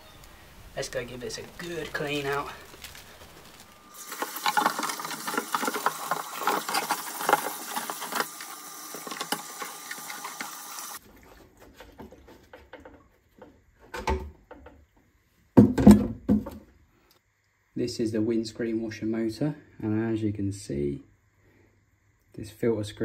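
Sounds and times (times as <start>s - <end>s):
tap water splashing: 4.0s - 13.5s
plastic bottle knocking in sink: 15.6s - 16.6s.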